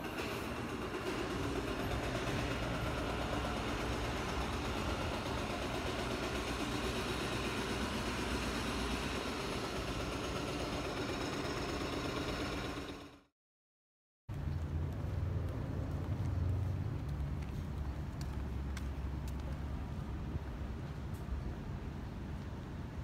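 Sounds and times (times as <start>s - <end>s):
street noise: 0.0s - 13.1s, 14.3s - 23.0s
vehicle engine idling: 0.1s - 13.3s.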